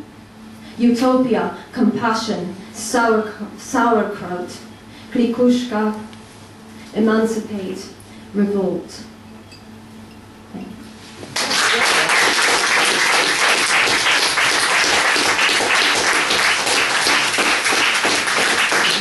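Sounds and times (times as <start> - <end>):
audience applauding: 11.4 - 19.0.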